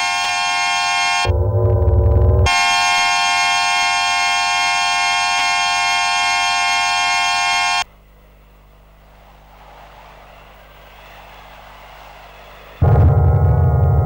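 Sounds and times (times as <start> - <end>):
sustained electronic chord: 1.2 - 7.8, 12.8 - 14.0.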